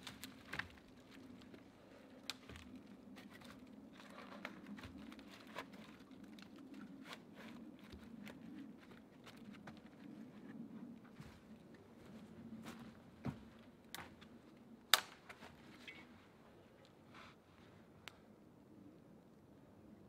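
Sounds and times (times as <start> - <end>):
small ticks and crackles: 0.0 - 11.1.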